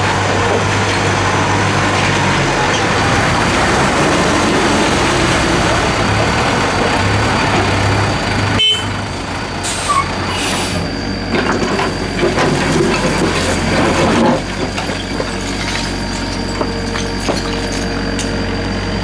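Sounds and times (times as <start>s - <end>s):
rubble knocking and clattering: 0.0s - 4.1s, 11.3s - 18.4s
excavator diesel engine running: 0.0s - 19.0s.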